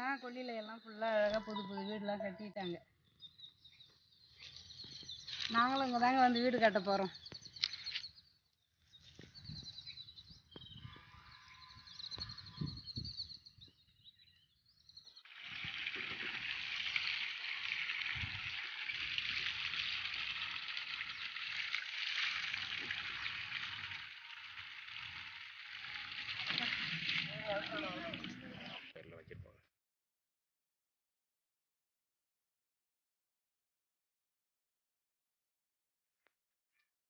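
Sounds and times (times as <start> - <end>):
faint bird chirps: 0.0 - 15.3
water rushing: 15.2 - 28.9.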